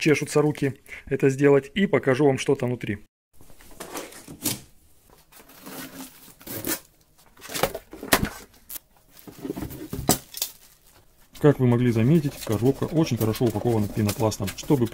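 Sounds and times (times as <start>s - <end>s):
cardboard and plastic rustling: 3.4s - 14.9s
cardboard tearing: 5.3s - 8.4s, 12.1s - 14.9s.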